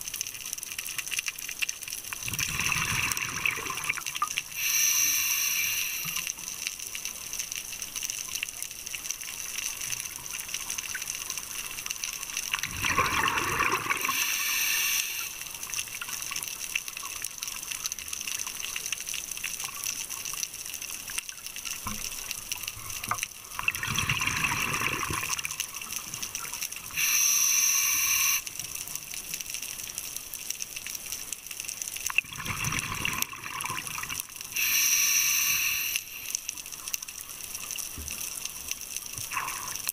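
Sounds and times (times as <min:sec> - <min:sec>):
faint underwater hiss: 0:01.8 - 0:19.0, 0:24.6 - 0:39.9
scuba regulator breathing underwater: 0:04.5 - 0:06.4, 0:12.9 - 0:15.5, 0:26.9 - 0:28.4, 0:34.5 - 0:36.4.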